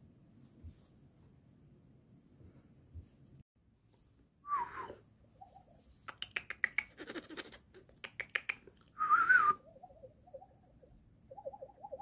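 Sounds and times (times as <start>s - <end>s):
quick sharp clicks: 7.8s - 8.8s.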